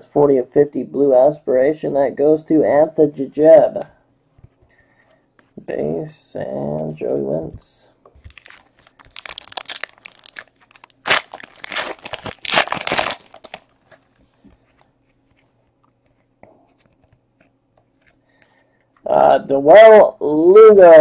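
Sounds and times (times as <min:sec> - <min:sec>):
foil wrapper tearing and crinkling: 0:08.2 - 0:14.0.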